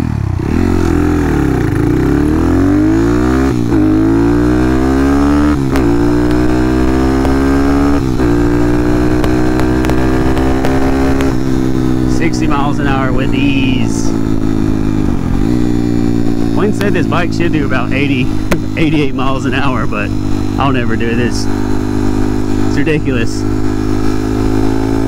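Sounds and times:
motorcycle engine at full throttle: 0:00.0 - 0:25.0.

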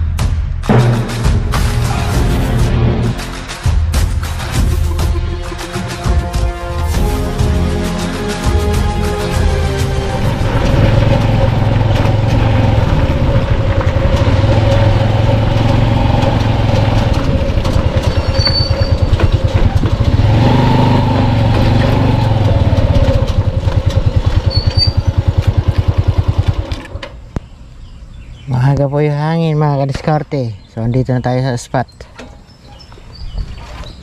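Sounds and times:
small motorcycle engine: 0:09.7 - 0:27.0.

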